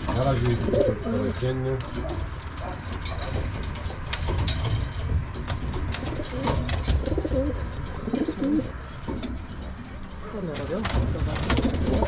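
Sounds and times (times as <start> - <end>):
pigeons cooing: 0.0 - 2.9, 5.8 - 9.7, 11.0 - 12.0.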